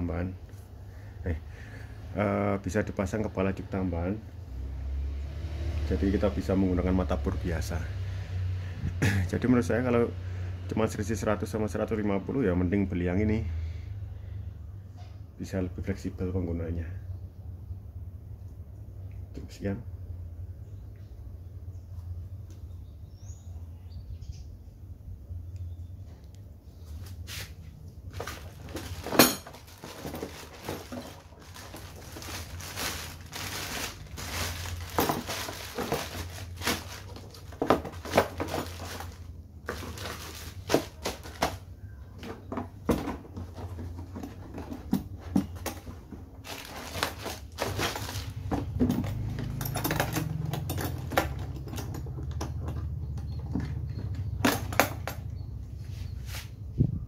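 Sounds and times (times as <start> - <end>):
plastic wrapping crinkling: 28.1 - 41.6, 46.4 - 48.5
plastic case parts knocking: 28.2 - 41.6.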